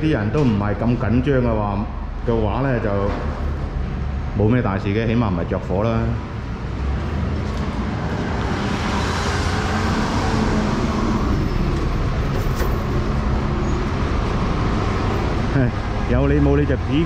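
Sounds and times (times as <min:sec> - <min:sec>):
city street traffic: 0:00.0 - 0:17.0
heavy vehicle engine humming: 0:00.0 - 0:17.0.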